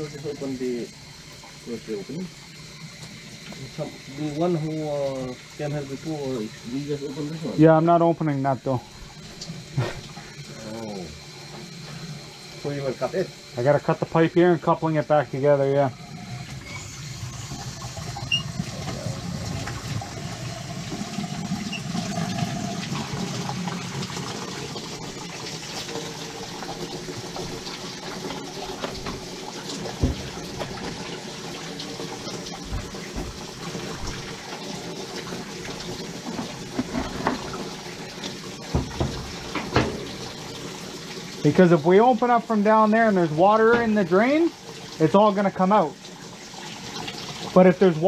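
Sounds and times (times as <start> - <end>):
knocks and clicks: 38.7 - 40.3.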